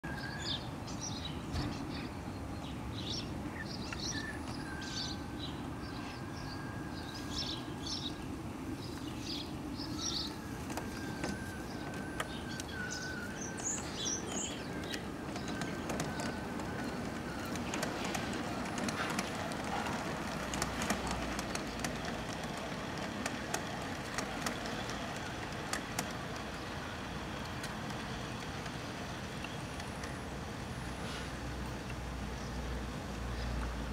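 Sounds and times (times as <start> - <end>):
small birds chirping: 0.1 - 33.8
model train humming: 3.4 - 33.2
light clicks of model train: 3.9 - 4.6, 10.6 - 32.1, 33.0 - 33.9.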